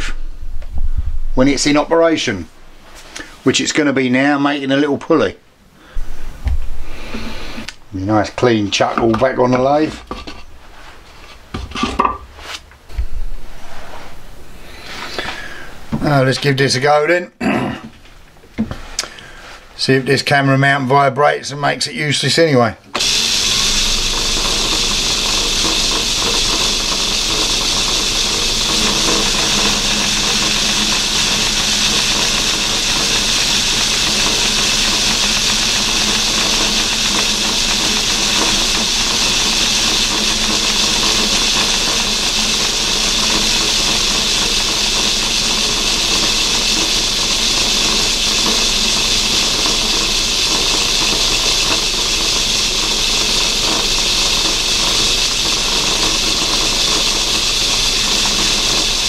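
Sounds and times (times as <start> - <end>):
lathe tool cutting metal hiss: 6.9 - 7.7, 23.0 - 59.0
lathe running hum: 8.8 - 12.1, 22.9 - 59.0.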